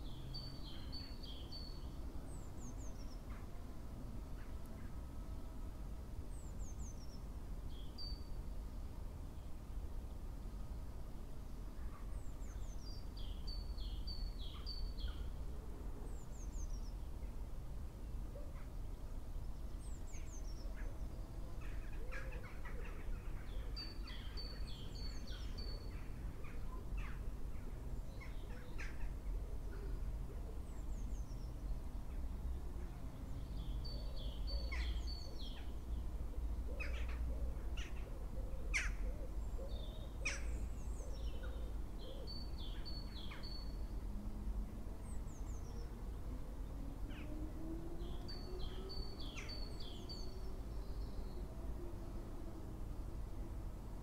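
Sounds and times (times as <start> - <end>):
songbird song phrase: 0.0 - 54.0.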